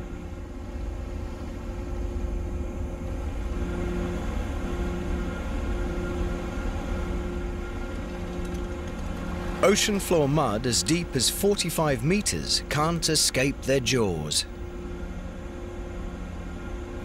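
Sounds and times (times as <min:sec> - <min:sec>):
constant hum: 0:00.0 - 0:17.0
ship machinery rumbling: 0:06.4 - 0:14.7.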